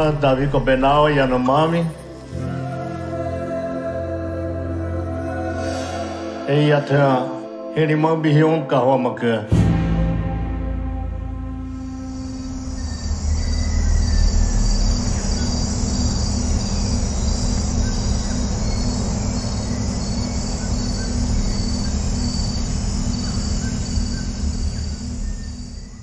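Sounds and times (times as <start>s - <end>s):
low steady hum: 11.0s - 26.0s
bird chirps: 11.8s - 26.0s
insects trilling: 11.8s - 26.0s.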